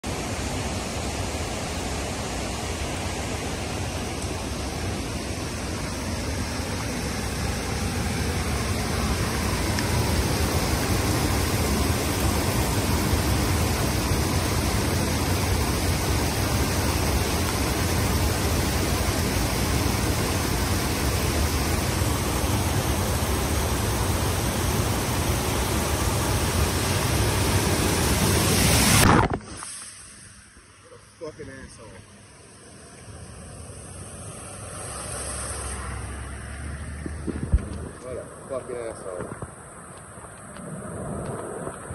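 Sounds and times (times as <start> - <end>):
floodwater rushing and cascading: 0.0 - 41.9.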